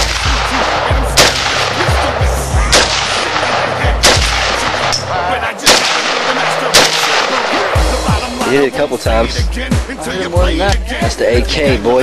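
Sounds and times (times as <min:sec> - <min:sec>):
rifle gunshots: 0:00.0 - 0:08.1.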